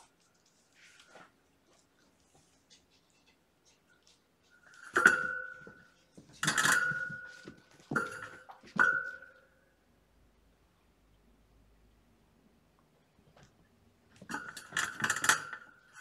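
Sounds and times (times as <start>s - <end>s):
metal object clanking and ringing: 4.8s - 9.5s.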